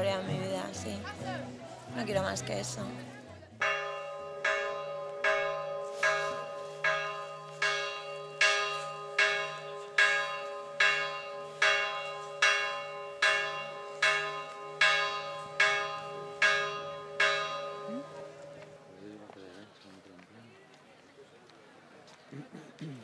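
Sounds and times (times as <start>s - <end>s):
church bell ringing: 3.6s - 19.0s.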